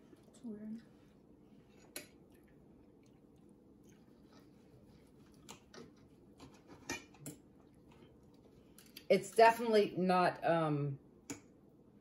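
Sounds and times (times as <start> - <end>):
faint chewing: 0.0 - 9.1
cutlery clinking on a plate: 6.5 - 7.4.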